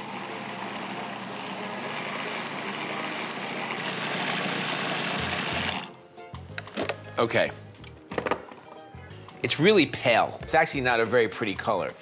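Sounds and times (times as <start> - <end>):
food processor motor running: 0.0 - 5.9.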